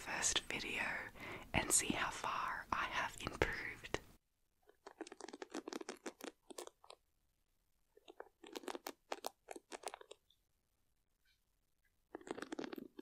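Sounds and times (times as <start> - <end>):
hairbrush pins scratching: 4.7 - 7.0, 8.0 - 10.2.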